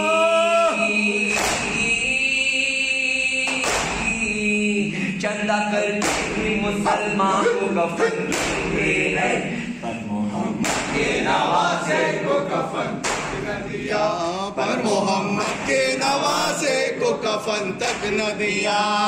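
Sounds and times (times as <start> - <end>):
man singing a lament into microphone: 0.0 - 10.6, 13.9 - 19.0
men chanting: 0.0 - 19.0
hands slapping chests: 1.3 - 1.8, 3.5 - 4.2, 6.0 - 6.4, 8.3 - 8.8, 10.6 - 11.1, 13.0 - 13.5.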